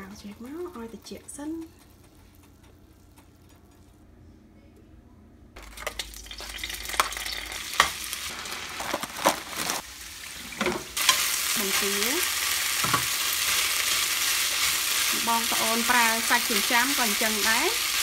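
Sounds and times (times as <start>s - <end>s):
food sizzling in frying pan: 5.6s - 18.0s.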